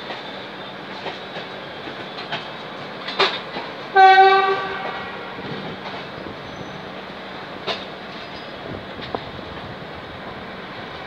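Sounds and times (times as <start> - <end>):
train wheels clicking over joints: 0.0 - 4.0, 4.6 - 9.6
train rolling noise: 0.0 - 11.0
locomotive horn: 3.9 - 5.4.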